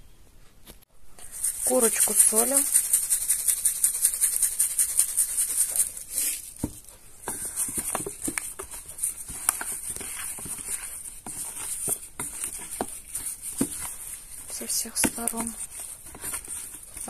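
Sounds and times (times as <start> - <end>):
salt rattling in shaker: 1.2 - 6.6
plastic glove crinkling: 1.2 - 17.0.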